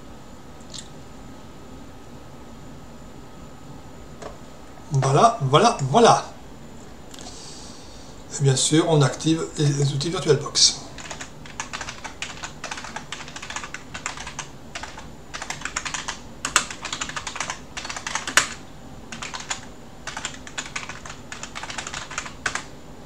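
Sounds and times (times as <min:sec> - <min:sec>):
computer keyboard key clicks: 0:19.2 - 0:22.6.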